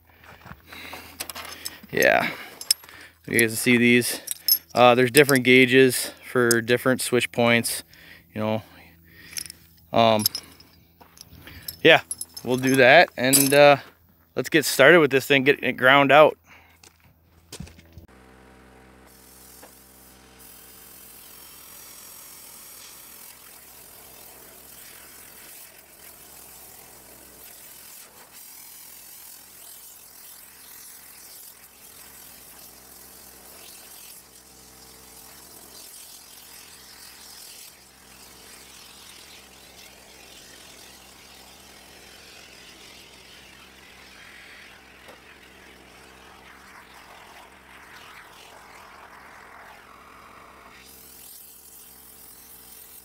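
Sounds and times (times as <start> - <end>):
hiss: 19.1 - 53.0.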